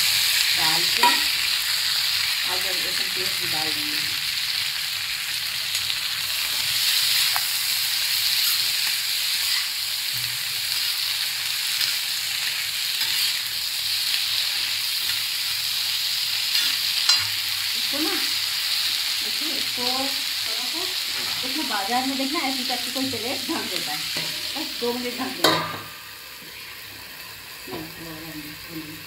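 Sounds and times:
onions sizzling in oil: 0:00.0 - 0:29.0.

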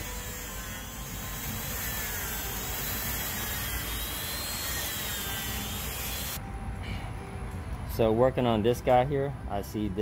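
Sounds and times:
rotary tool wire brush grinding rock: 0:00.0 - 0:06.4.

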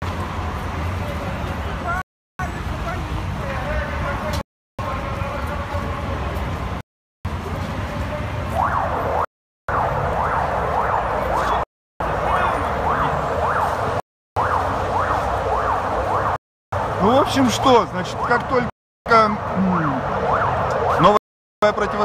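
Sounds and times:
street noise: 0:00.0 - 0:22.0
siren yelping: 0:08.5 - 0:18.5, 0:19.1 - 0:22.0.

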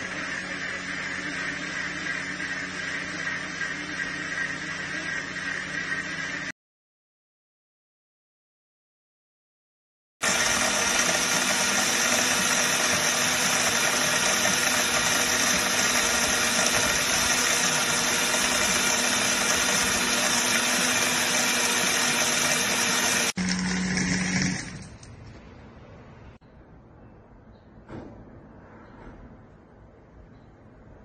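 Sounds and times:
blender running: 0:00.0 - 0:06.6, 0:10.2 - 0:25.1.

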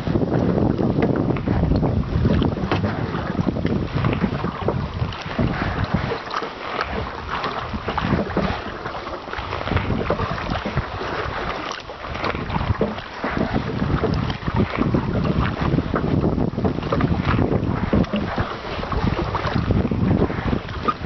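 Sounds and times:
choppy water: 0:00.0 - 0:21.0
paddle strokes splashing water: 0:00.0 - 0:21.0
wind on microphone: 0:00.0 - 0:21.0.

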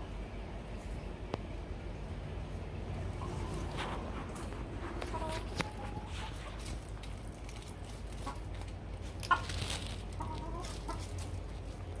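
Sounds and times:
hen clucking: 0:03.0 - 0:07.1, 0:08.0 - 0:12.0.

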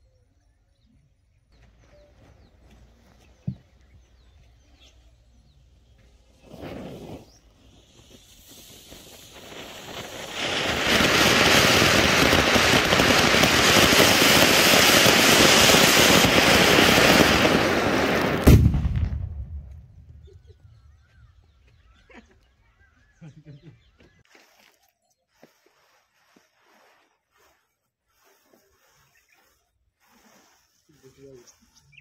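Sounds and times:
firework fountain hissing: 0:05.9 - 0:19.2, 0:25.7 - 0:32.0
firecracker bang: 0:08.0 - 0:20.2.

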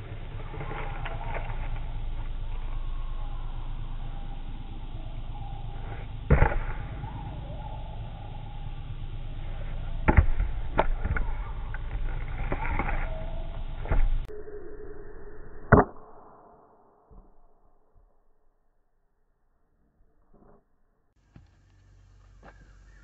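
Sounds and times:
axe striking wood: 0:06.3 - 0:06.8.

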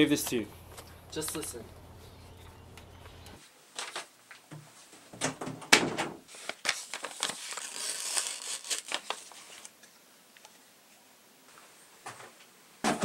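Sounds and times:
paper envelope rustling: 0:06.3 - 0:09.8.

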